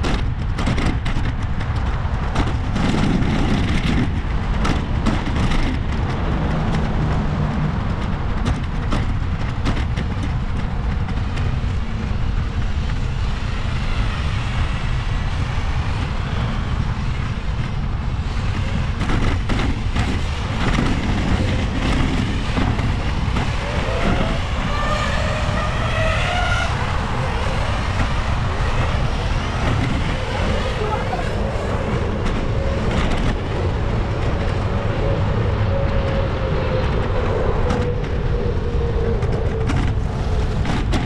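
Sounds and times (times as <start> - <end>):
bicycle rolling noise: 0.0 - 41.0
wind on microphone: 0.0 - 41.0
person's voice: 30.6 - 31.6.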